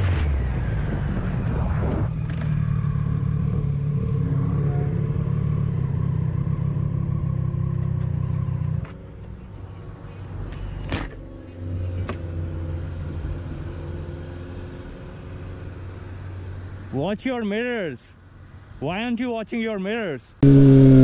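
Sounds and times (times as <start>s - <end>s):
motorcycle engine running: 2.5s - 9.4s, 20.4s - 21.0s.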